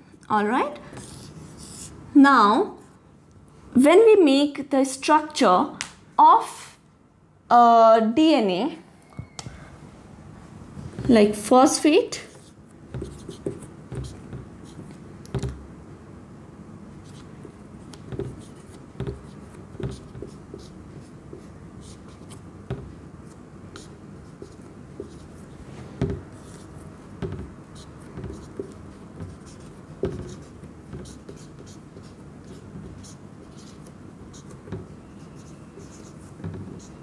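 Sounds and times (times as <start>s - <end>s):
marker pen scratching on whiteboard: 0.9s - 2.0s, 12.2s - 15.6s, 17.0s - 37.0s
marker pen tapping on whiteboard: 12.9s - 14.6s, 15.2s - 15.6s, 17.4s - 20.7s, 22.6s - 23.0s, 26.0s - 26.3s, 27.2s - 33.7s, 34.3s - 34.9s, 35.8s - 37.0s.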